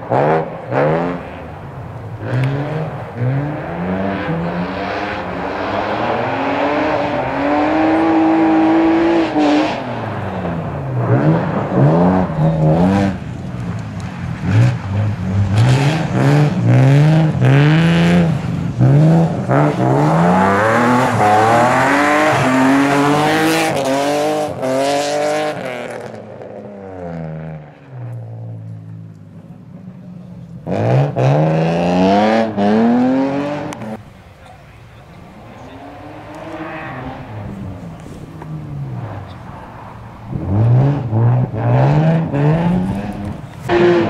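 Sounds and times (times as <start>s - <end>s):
rally car engine revving hard: 2.2s - 13.4s, 14.0s - 27.5s, 30.6s - 34.0s, 40.2s - 44.0s.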